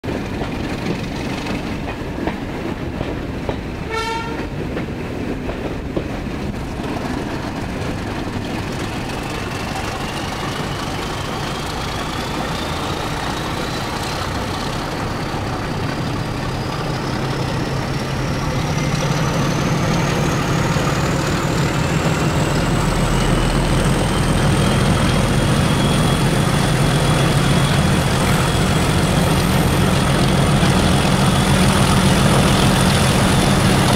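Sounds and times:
diesel locomotive engine rumble: 0.0 - 33.9
train clatter: 0.0 - 33.9
train horn toot: 3.9 - 4.6.

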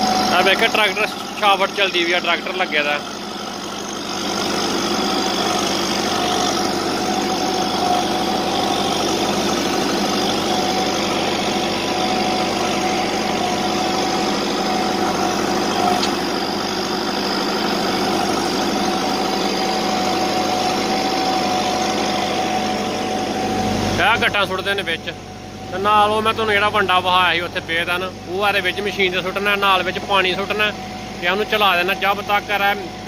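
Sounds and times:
tractor diesel engine running: 0.0 - 33.0.

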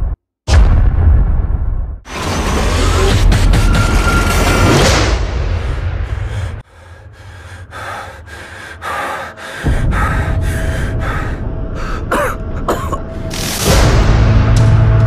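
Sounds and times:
low rumbling drone: 1.2 - 15.0
person breathing heavily: 5.5 - 12.7
person gasping: 6.0 - 12.7.

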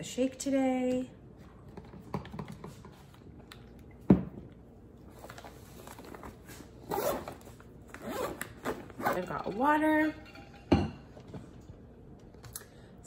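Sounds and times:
zipper being pulled: 6.8 - 9.2.

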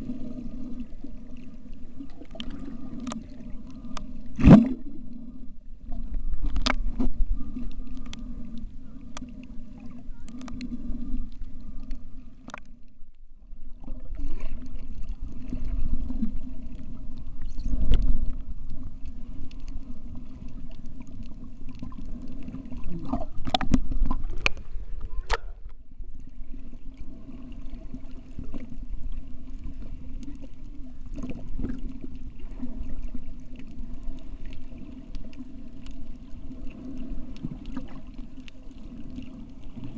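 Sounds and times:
underwater low hum: 0.0 - 39.9
underwater clicks and knocks: 6.0 - 8.2, 10.2 - 10.7, 12.4 - 13.0, 17.4 - 18.4, 22.8 - 25.8.

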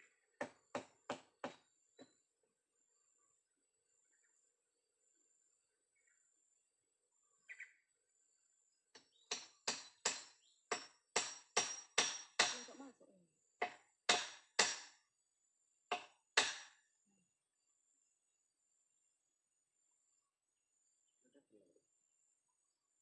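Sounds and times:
hammer driving nails into wood: 9.0 - 12.7, 13.6 - 15.0, 15.9 - 16.8.

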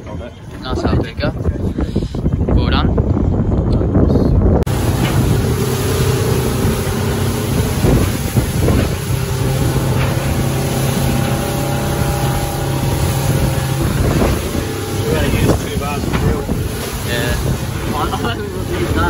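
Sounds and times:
motorboat engine running: 0.0 - 19.0
water rushing from hull: 4.6 - 19.0.

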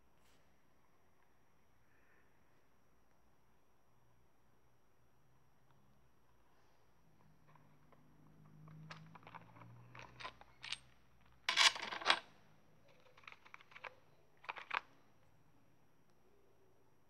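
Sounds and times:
objects clattering: 11.5 - 12.3.

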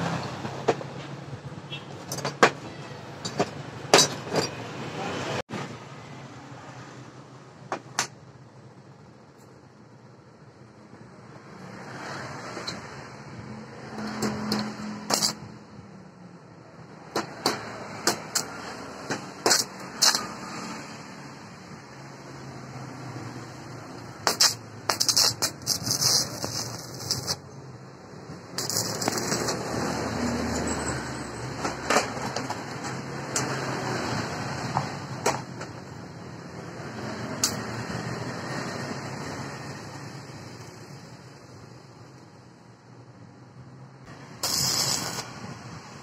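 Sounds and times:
arc welder crackling: 24.0 - 27.5, 28.6 - 29.9, 44.1 - 45.8.

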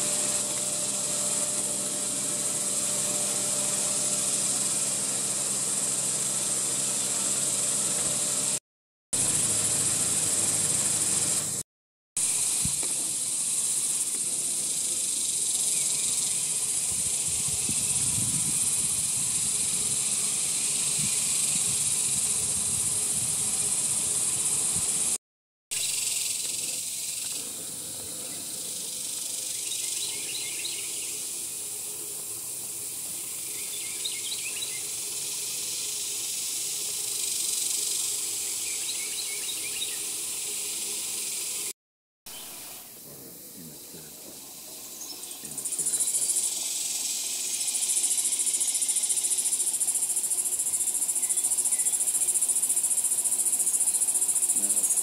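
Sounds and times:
high-pitched insect chorus: 0.0 - 8.6, 9.2 - 11.6, 12.2 - 25.2, 25.8 - 41.7, 42.3 - 55.0
small bird chirping: 28.2 - 31.3, 33.2 - 36.4, 37.2 - 41.7, 42.3 - 55.0.

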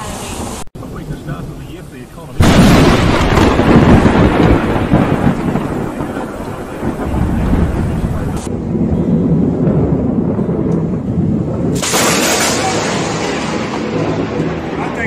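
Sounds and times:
rain hiss: 0.0 - 8.5
thunder rumbling: 0.0 - 15.0.

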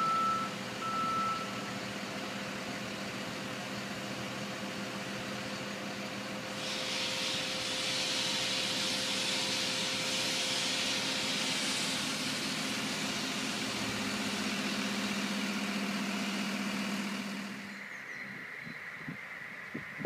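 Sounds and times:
crane diesel engine running: 0.0 - 17.9
hissing rush: 6.6 - 15.2.

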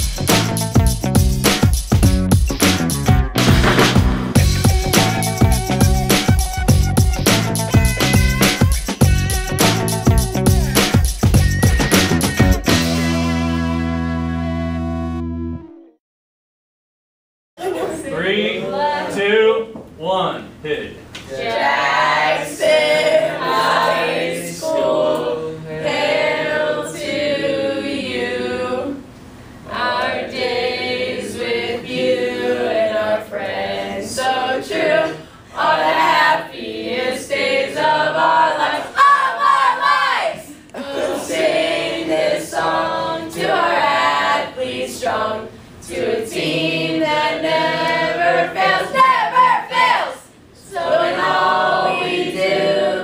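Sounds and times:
group singing unaccompanied: 21.3 - 29.1, 29.7 - 53.0.

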